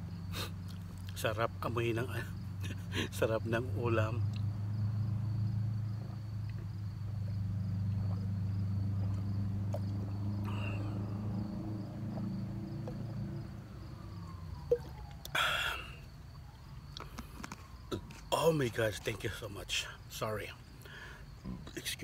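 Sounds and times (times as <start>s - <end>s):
low pitched drone: 4.3s - 16.1s
breathy exhale: 10.4s - 11.4s, 15.3s - 16.0s, 20.8s - 21.4s.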